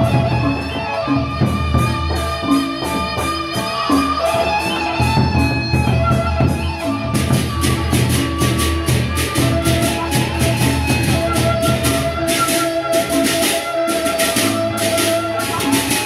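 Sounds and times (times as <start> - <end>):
hand cymbals clashing: 0.0 - 16.0
large barrel drums: 0.0 - 16.0.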